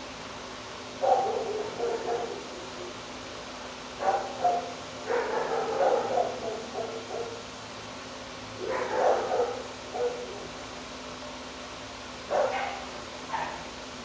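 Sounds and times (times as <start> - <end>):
dogs barking: 1.0 - 3.0, 4.0 - 7.6, 8.5 - 10.6, 12.2 - 13.8.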